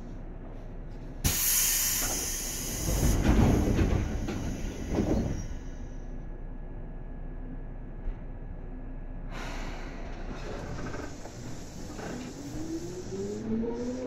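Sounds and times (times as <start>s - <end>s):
compressed air hiss: 1.3s - 3.1s.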